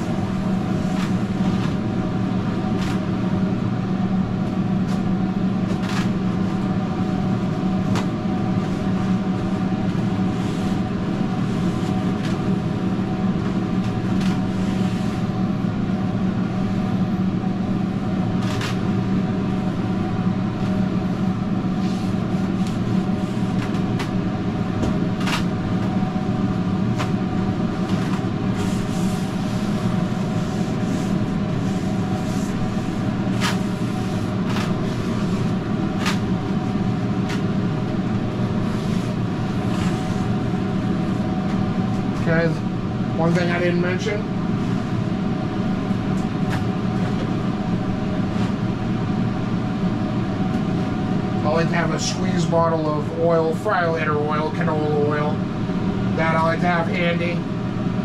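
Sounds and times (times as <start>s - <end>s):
kitchen machine drone: 0.0s - 58.0s.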